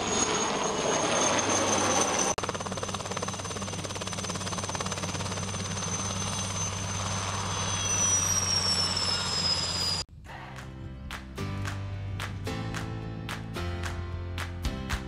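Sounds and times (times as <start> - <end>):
helicopter engine and rotor drone: 0.0 - 10.0
high whine: 5.8 - 11.5
music: 10.1 - 15.0.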